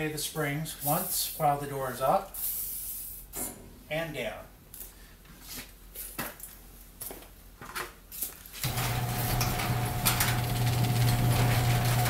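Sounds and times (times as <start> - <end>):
garage door opener humming: 8.6 - 12.0.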